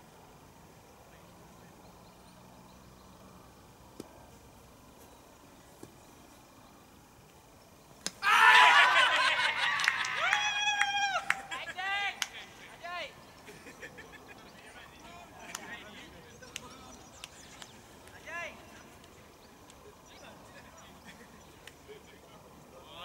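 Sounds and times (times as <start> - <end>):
fielders shouting: 8.1 - 13.3.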